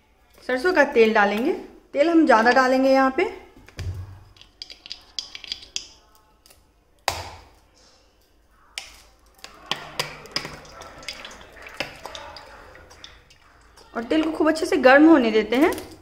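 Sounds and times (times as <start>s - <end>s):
oil pouring into metal pan: 9.4s - 13.9s.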